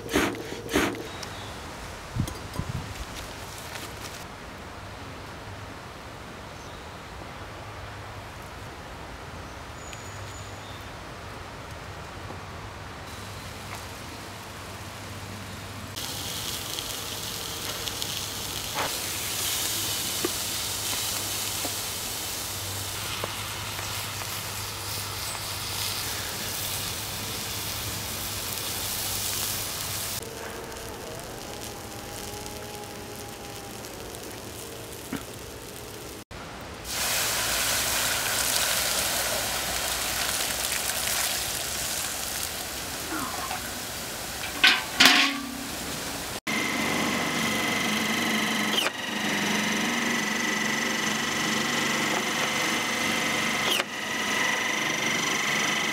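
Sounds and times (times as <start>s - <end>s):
hiss of fire being put out: 0.0s - 4.3s, 15.9s - 36.2s, 36.8s - 46.4s
sausages sizzling in a frying pan: 15.9s - 36.2s, 36.9s - 46.4s.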